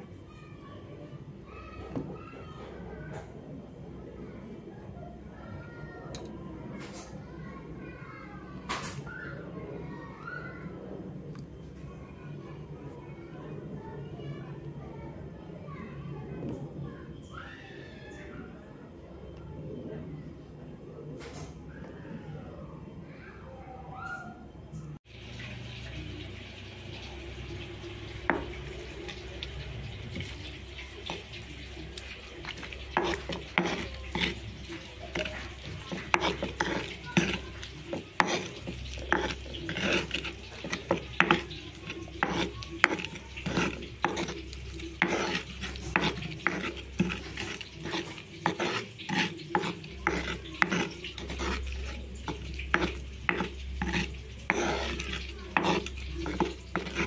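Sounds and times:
stone pestle grinding in mortar: 28.1s - 57.0s.

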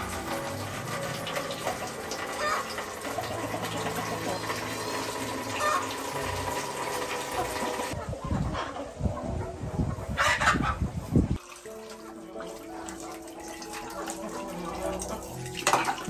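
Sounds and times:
tap water splashing into basin: 15.0s - 16.0s.

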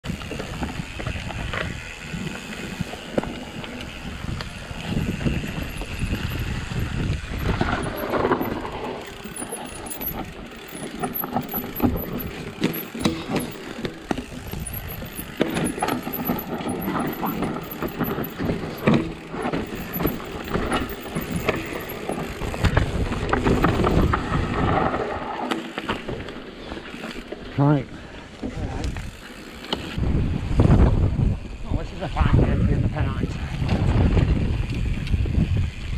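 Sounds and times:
wind buffeting microphone: 0.0s - 10.7s, 11.3s - 25.4s, 28.4s - 35.9s
bike tyre noise: 0.0s - 35.9s
bike knocks and rattles: 0.1s - 27.4s.

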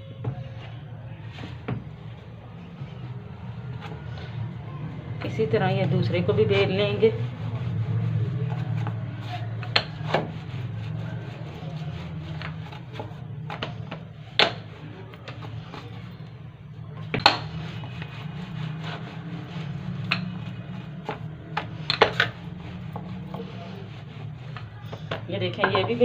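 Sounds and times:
rolling pin rolling dough: 0.0s - 26.0s
steady low hum: 0.0s - 26.0s
rolling pin knocking board: 9.6s - 10.4s, 12.3s - 15.8s, 17.0s - 18.2s, 18.8s - 23.5s.

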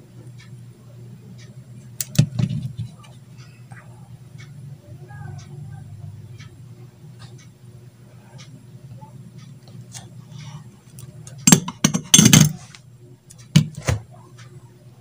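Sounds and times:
low steady hum: 0.0s - 15.0s
metal tools clinking on workbench: 11.4s - 12.6s.

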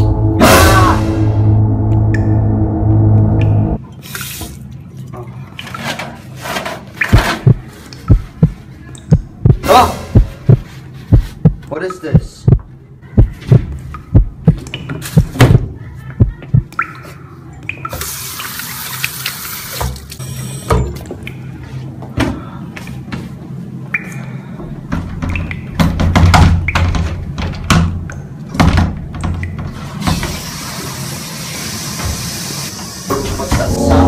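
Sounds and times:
low drone: 0.0s - 3.8s, 33.1s - 34.0s
toilet flushing: 29.8s - 34.0s.

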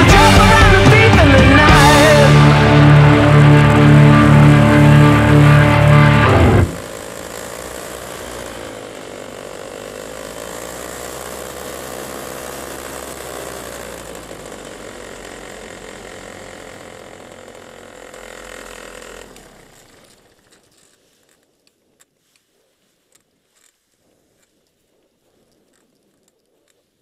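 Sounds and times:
paramotor engine running: 0.0s - 21.4s.

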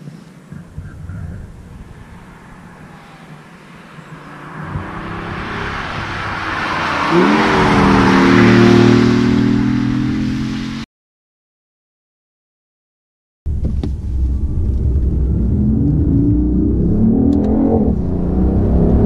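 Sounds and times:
tyre and wind rush: 0.0s - 9.6s
car engine accelerating hard: 0.5s - 10.8s, 13.5s - 19.0s.

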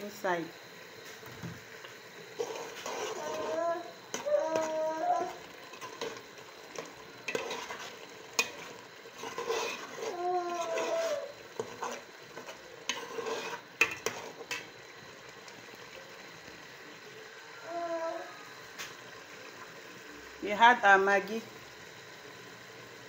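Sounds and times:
low frying sizzle: 0.0s - 23.0s
metal spoon scraping a pot: 2.4s - 4.7s, 5.7s - 14.7s.

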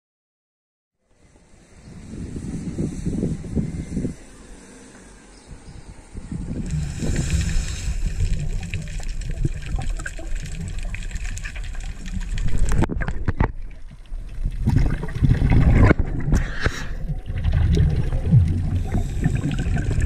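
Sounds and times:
underwater bubbling and gurgling: 6.2s - 20.0s.

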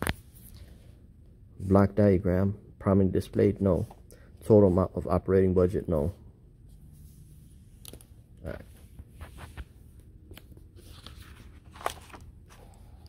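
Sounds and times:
paper pages rustling: 7.0s - 13.0s.

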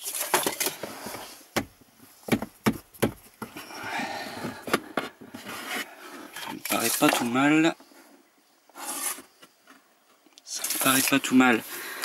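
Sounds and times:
plywood pieces knocking: 1.6s - 3.6s
wood scraping on wood: 3.4s - 8.1s, 8.7s - 9.9s.

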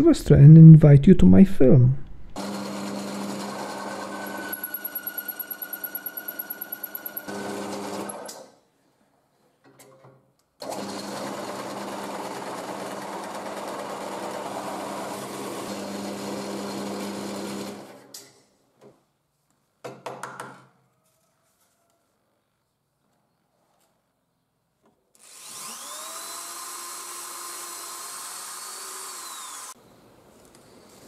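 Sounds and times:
drill press motor hum: 2.4s - 8.5s, 10.6s - 18.0s, 25.2s - 29.8s
circle cutter cutting plywood: 25.2s - 29.8s.

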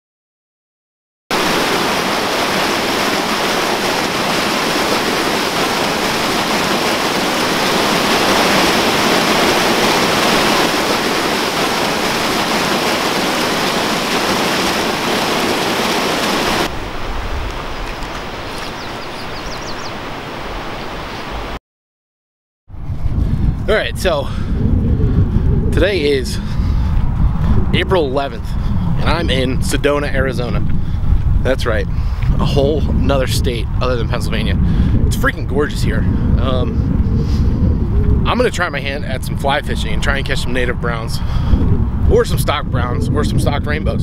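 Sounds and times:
whitewater rushing over rocks: 1.3s - 19.3s
low rumbles: 1.3s - 20.7s, 22.7s - 44.0s.

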